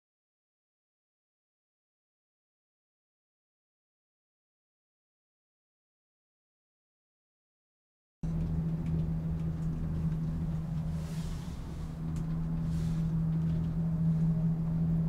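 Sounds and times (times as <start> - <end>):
cable car humming and rumbling: 8.2 - 15.0.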